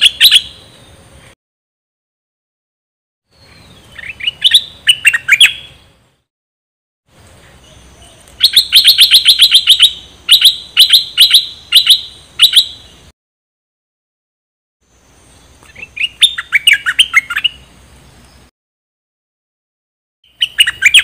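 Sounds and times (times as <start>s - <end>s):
bulbul chirping: 0.0s - 0.7s, 3.5s - 5.9s, 7.6s - 13.0s, 15.6s - 17.7s, 20.2s - 21.0s.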